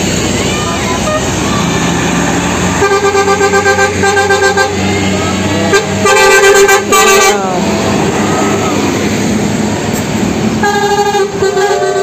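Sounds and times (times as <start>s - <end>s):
low bus engine hum: 0.0s - 12.0s
bus horn toots and blasts: 0.6s - 1.7s, 2.6s - 8.9s, 10.5s - 12.0s.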